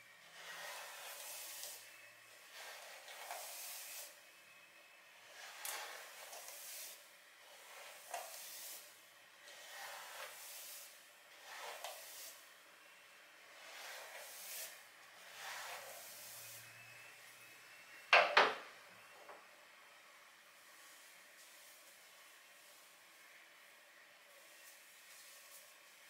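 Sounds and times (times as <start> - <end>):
hair being brushed: 0.2 - 4.2, 5.2 - 12.6, 13.5 - 17.4, 20.7 - 23.4, 24.3 - 26.0.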